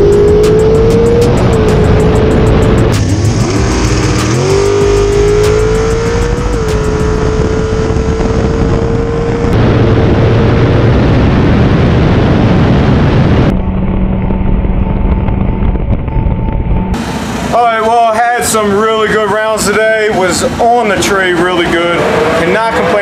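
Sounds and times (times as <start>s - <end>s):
dragster engine at full throttle: 0.0s - 13.6s
wind noise: 0.0s - 17.0s.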